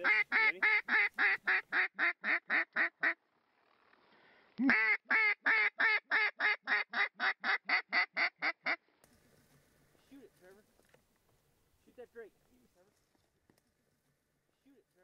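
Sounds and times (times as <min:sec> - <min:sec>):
duck call quacking: 0:00.0 - 0:03.2, 0:04.6 - 0:08.8.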